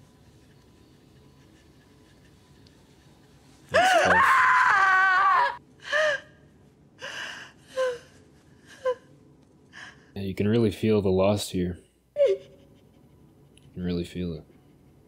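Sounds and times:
woman screaming: 0:03.8 - 0:05.6
woman sobbing cries: 0:07.0 - 0:09.1, 0:12.2 - 0:12.9.

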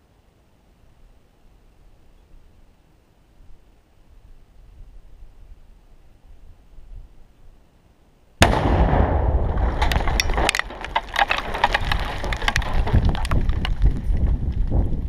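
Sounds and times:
explosion blast and rumble: 0:08.4 - 0:15.0
rocks and gravel falling: 0:08.4 - 0:15.0.

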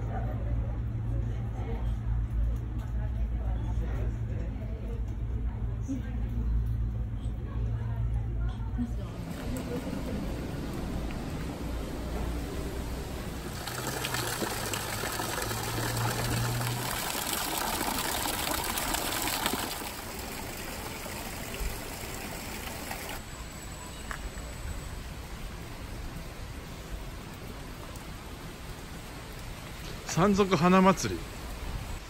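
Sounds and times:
rain: 0:09.1 - 0:32.0
trickling water: 0:09.2 - 0:23.6.

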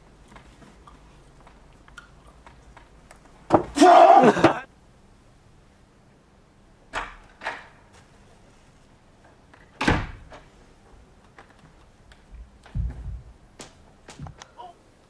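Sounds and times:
door shutting with a bang: 0:09.8 - 0:10.4.

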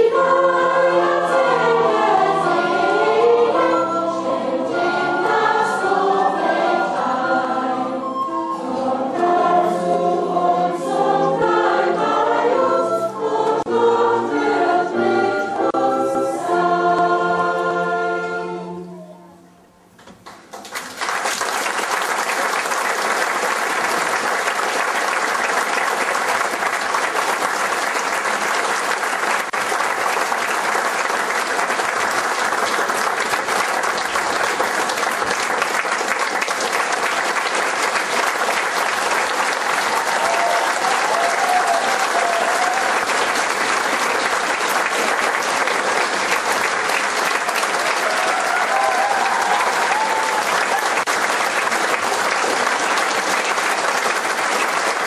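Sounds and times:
audience applause: 0:20.2 - 0:55.0.

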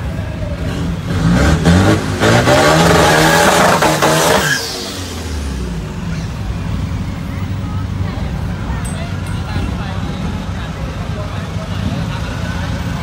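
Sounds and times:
diesel truck engine revving: 0:00.0 - 0:08.6.

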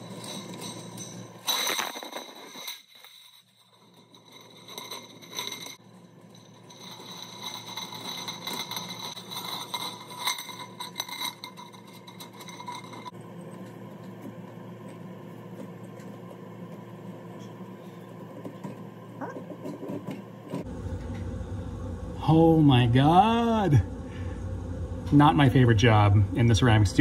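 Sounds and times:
wire scraping and clinking on brick: 0:00.0 - 0:16.3.

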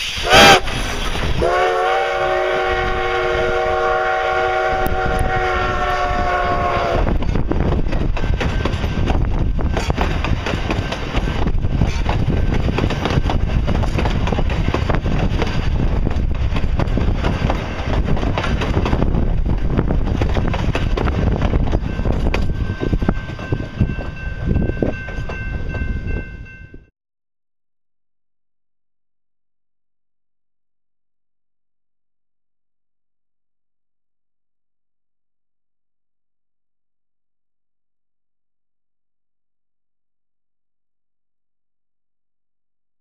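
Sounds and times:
steam locomotive chime whistle: 0:00.0 - 0:00.8, 0:01.4 - 0:07.4
train wheels clattering over rail joints: 0:07.2 - 0:25.8.

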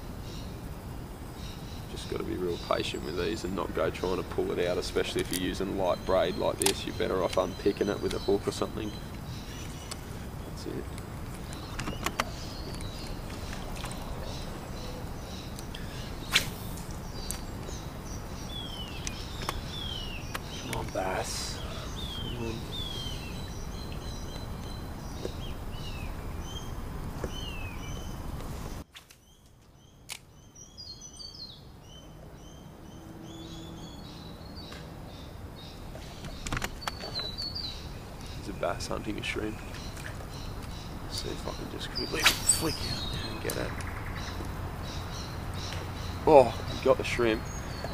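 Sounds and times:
outdoor hiss: 0:00.0 - 0:47.9
bird chirps: 0:01.3 - 0:47.9
sharp click: 0:06.6 - 0:08.2, 0:16.3 - 0:17.4, 0:30.1 - 0:30.3, 0:42.2 - 0:42.8
fishing rod swish: 0:16.3 - 0:16.9, 0:42.2 - 0:42.7.

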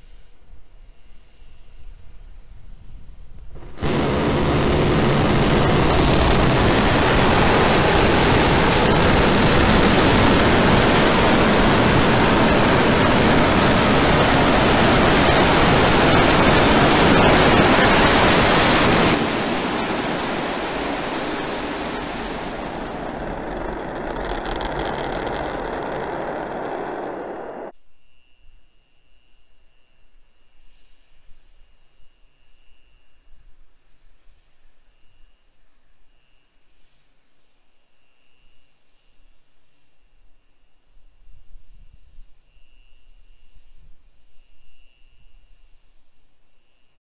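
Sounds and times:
low rumble: 0:03.4 - 0:27.7
crackling: 0:03.5 - 0:27.7
rocket engines firing: 0:03.5 - 0:27.7.

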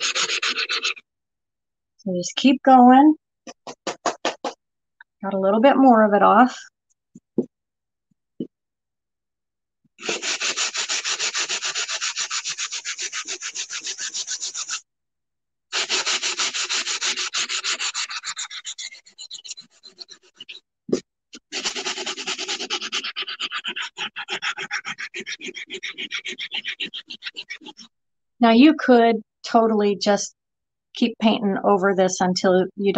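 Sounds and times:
sanding sponge scraping tile: 0:00.0 - 0:01.0, 0:10.0 - 0:14.8, 0:15.7 - 0:20.6, 0:21.4 - 0:27.9.

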